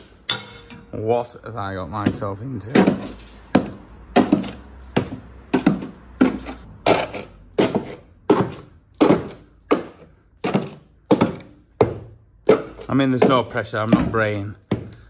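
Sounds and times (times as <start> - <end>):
screwdriver striking rusted metal: 0.0 - 1.0.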